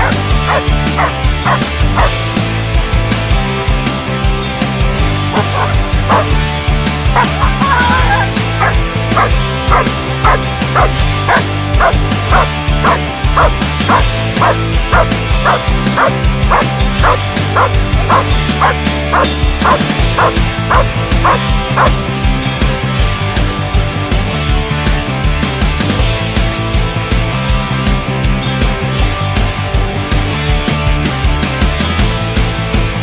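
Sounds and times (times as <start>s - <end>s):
dog barking: 0.0s - 2.2s, 5.3s - 6.3s, 7.2s - 22.0s
rock music: 0.0s - 33.0s.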